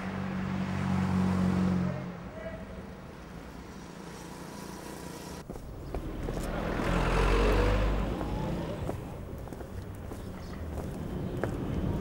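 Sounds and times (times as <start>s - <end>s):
street ambience: 0.0s - 12.0s
motor vehicle passing by: 3.1s - 12.0s.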